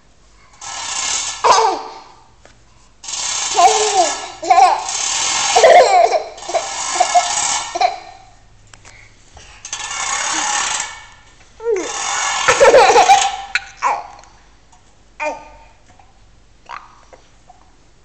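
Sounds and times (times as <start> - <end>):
baby laughing and giggling: 3.5 - 8.3, 11.6 - 14.2.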